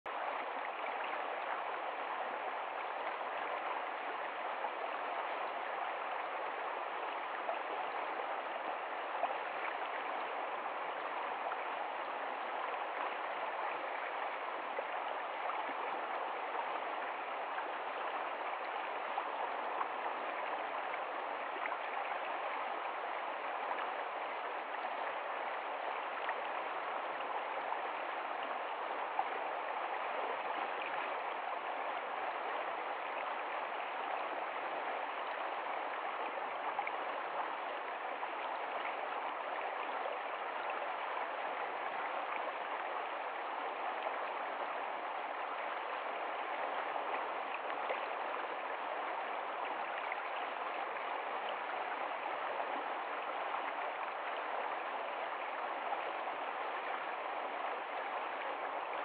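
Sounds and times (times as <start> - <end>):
stream rushing over stones: 0.1 - 59.0.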